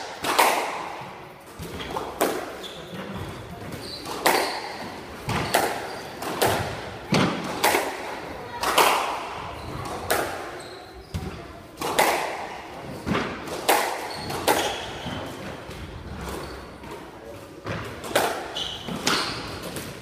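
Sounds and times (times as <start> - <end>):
squash ball hits off walls: 0.0 - 8.0
shoes squeaking on wooden floor: 2.6 - 6.2, 10.6 - 11.4, 14.1 - 15.4.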